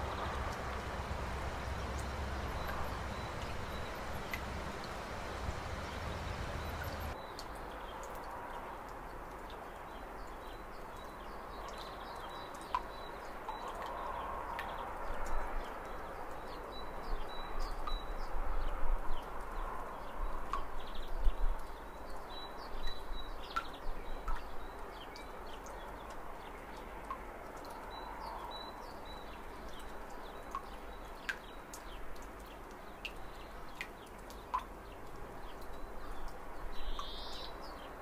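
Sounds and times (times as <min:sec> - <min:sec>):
water rushing over rocks: 0:00.0 - 0:07.2
water splashing: 0:00.0 - 0:07.2
bird chirps: 0:01.4 - 0:07.2.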